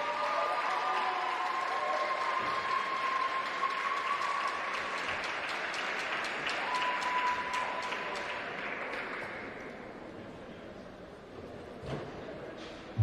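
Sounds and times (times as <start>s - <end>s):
audience applause: 0.0s - 9.7s.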